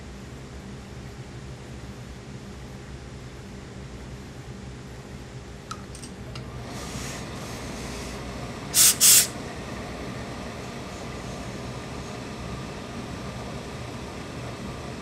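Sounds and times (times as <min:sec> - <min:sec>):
steam iron hissing: 0:06.7 - 0:09.4.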